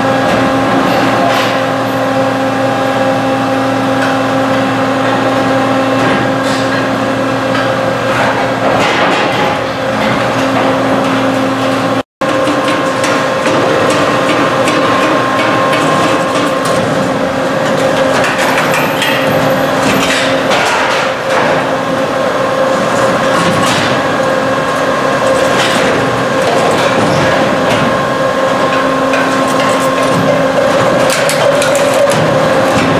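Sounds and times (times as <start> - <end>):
machine humming: 0.0 - 32.9
metal clanks and knocks: 12.2 - 21.8, 25.3 - 32.9.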